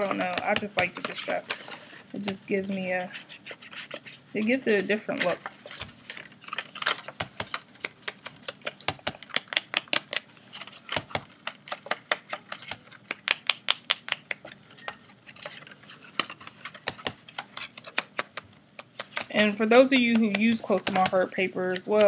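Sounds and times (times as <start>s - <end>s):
paper tapping on ink pad: 19.8s - 21.2s.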